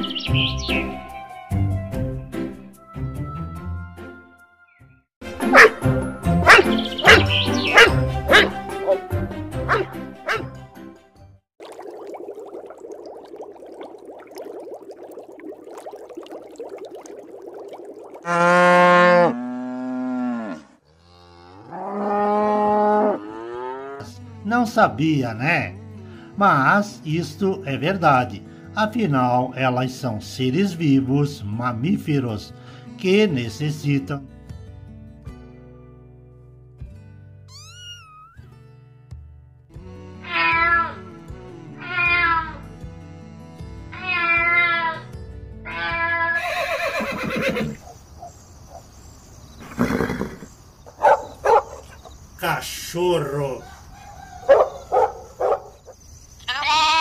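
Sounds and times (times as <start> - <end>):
aquarium water bubbling: 11.6 - 19.0
cow mooing: 18.3 - 24.1
kitten meowing: 37.5 - 38.2, 40.3 - 41.0, 41.8 - 42.6, 44.0 - 45.0.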